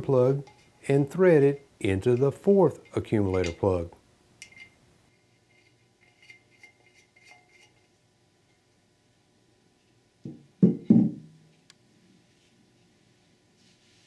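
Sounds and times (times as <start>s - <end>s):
metal casting knocking on workbench: 10.3s - 11.3s.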